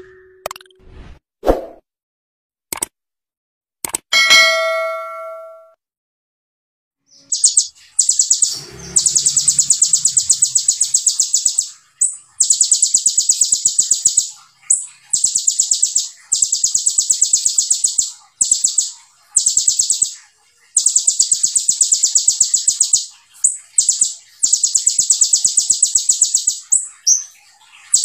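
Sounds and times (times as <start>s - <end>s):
sunbird singing fast high notes: 7.1s - 27.3s.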